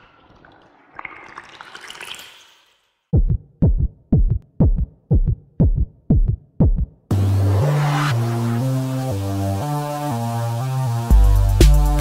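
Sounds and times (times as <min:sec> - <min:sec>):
electronic kick drum beat: 0:03.1 - 0:07.3, 0:11.1 - 0:12.0.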